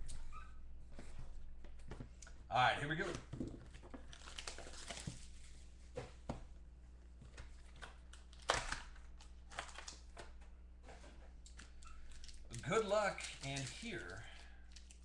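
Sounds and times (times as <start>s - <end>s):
plastic wrapping crinkling and tearing: 3.8s - 5.5s, 7.6s - 10.2s, 11.4s - 15.0s.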